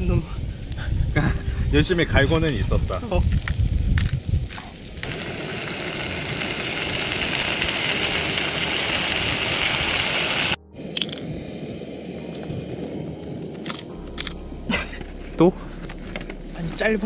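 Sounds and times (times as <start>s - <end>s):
meat sizzling in a frying pan: 2.1s - 10.6s.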